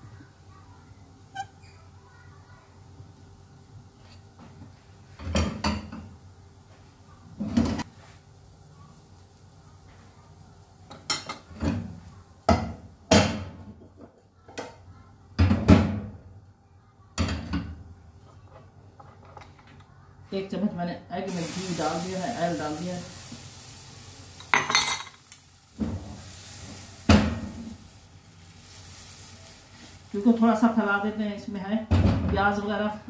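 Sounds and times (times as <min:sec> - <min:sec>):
pans and dishes clinking: 0:05.2 - 0:06.1, 0:24.4 - 0:26.2.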